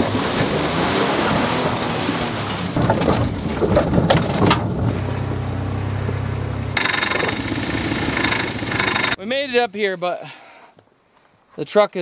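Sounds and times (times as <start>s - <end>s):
low engine hum: 0.0s - 9.2s.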